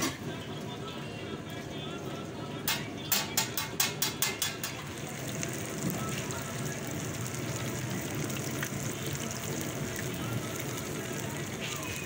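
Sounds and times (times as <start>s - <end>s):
oil sizzling: 0.0s - 12.0s
spatula tapping against pan: 2.7s - 4.9s.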